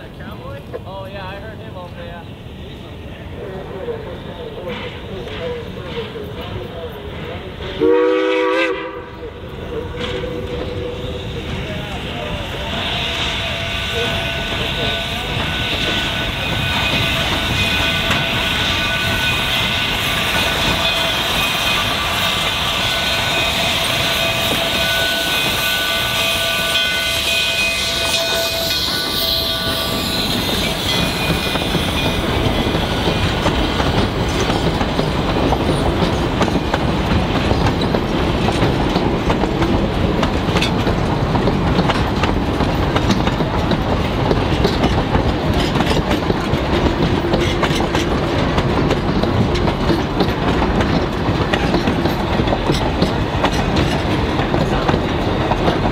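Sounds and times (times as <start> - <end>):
train wheels clickety-clack: 4.4 - 55.9
steam whistle blasts: 7.8 - 9.2, 12.8 - 31.5.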